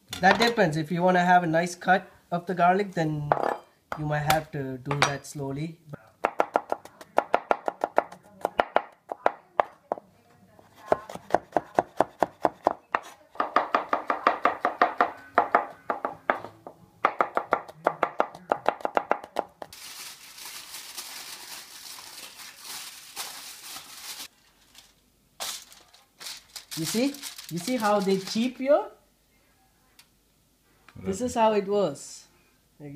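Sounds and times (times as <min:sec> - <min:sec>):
knife chopping on wooden board: 0:10.8 - 0:19.6
aluminium foil crinkling: 0:19.7 - 0:28.6.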